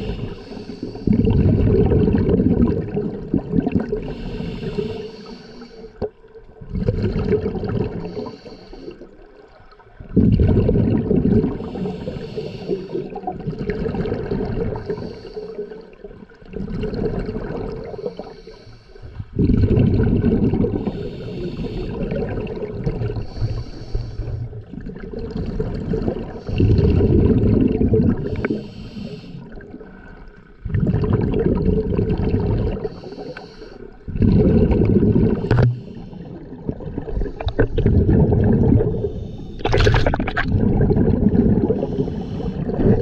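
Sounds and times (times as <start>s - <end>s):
regulator hissing inhale: 0.0s - 1.1s, 4.1s - 6.0s, 8.0s - 9.1s, 11.6s - 13.1s, 14.8s - 15.8s, 17.9s - 19.2s, 20.8s - 22.2s, 23.2s - 24.5s, 28.3s - 29.6s, 32.8s - 34.0s, 35.6s - 36.5s, 38.9s - 39.6s, 41.8s - 42.7s
exhaled bubbles bursting: 1.0s - 4.2s, 6.0s - 8.3s, 10.0s - 12.1s, 12.9s - 15.0s, 16.1s - 18.3s, 19.3s - 23.5s, 24.3s - 28.6s, 29.5s - 33.0s, 34.0s - 43.0s.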